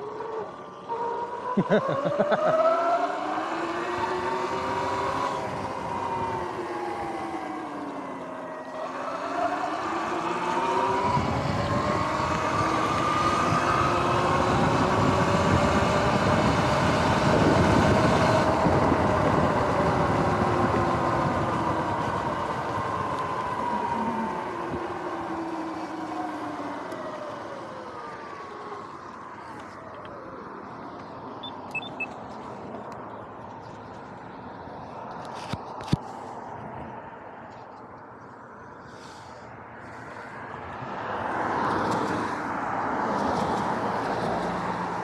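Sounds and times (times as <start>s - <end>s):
electric motorbike motor whining: 0.0s - 31.8s.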